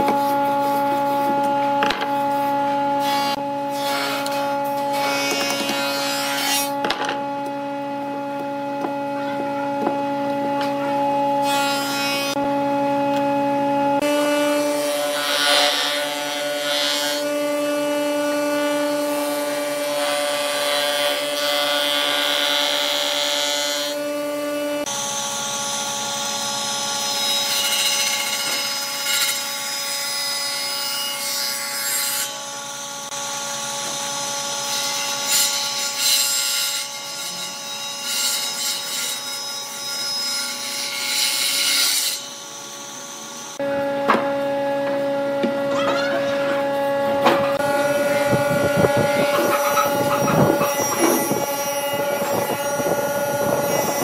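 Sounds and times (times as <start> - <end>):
jointer planing wood: 0.0 - 54.0
table saw cutting: 0.0 - 54.0
motor hum: 43.1 - 54.0.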